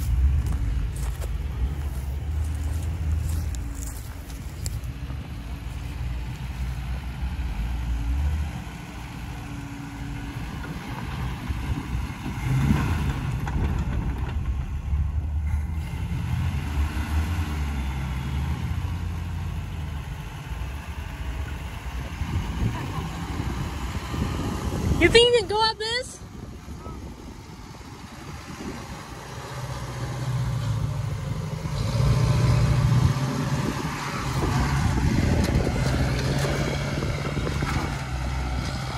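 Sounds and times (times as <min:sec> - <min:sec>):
pickup truck engine rumbling: 0:00.0 - 0:38.9.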